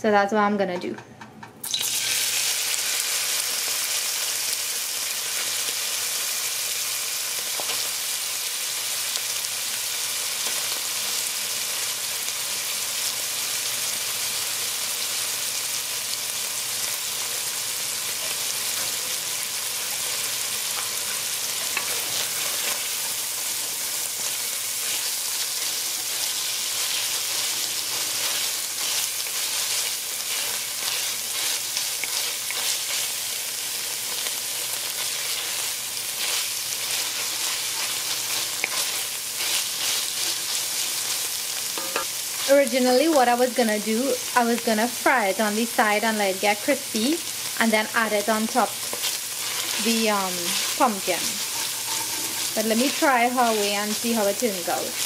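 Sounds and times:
fish sizzling in hot oil: 1.6 - 55.0
wooden spoon stirring and scraping: 20.7 - 33.2, 36.2 - 41.3, 48.8 - 55.0.

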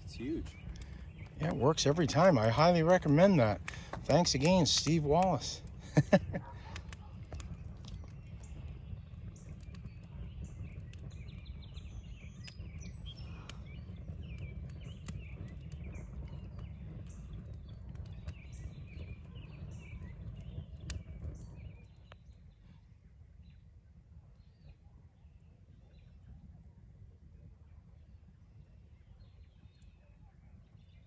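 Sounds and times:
birds chirping: 0.0 - 22.6
campfire crackling and popping: 0.0 - 31.0.

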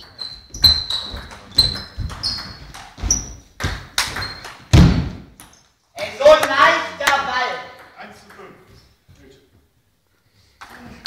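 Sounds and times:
heavy thud: 4.7 - 5.3.

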